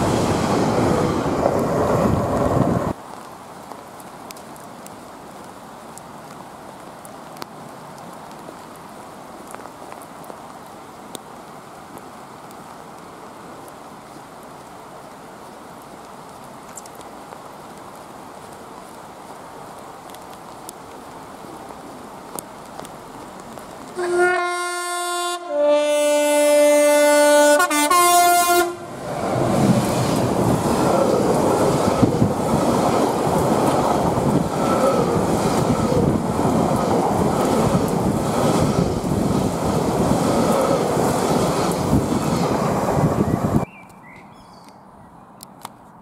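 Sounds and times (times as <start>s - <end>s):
train wagons rumbling and clattering: 0.0s - 3.0s, 28.9s - 43.6s
train horn two-tone call: 24.0s - 28.9s.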